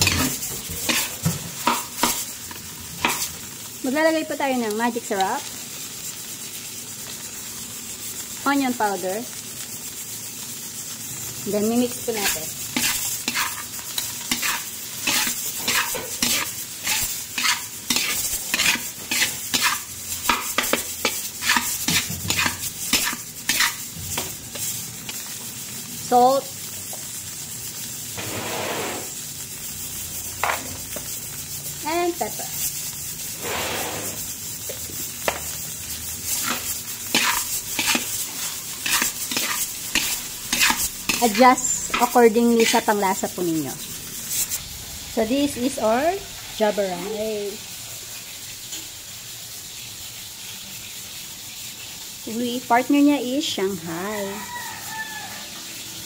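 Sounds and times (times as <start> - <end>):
metal spatula scraping wok: 0.0 - 3.5, 11.6 - 25.4, 28.2 - 29.4, 32.3 - 34.5, 36.2 - 44.7
rice sizzling in oil: 0.0 - 56.0.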